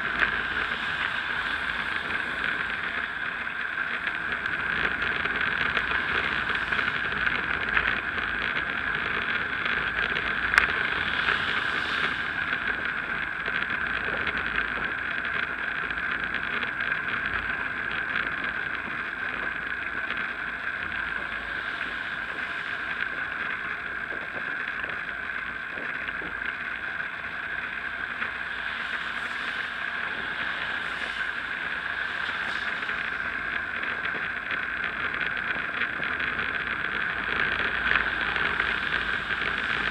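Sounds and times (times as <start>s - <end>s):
bicycle tyres on damp tarmac: 0.0s - 39.9s.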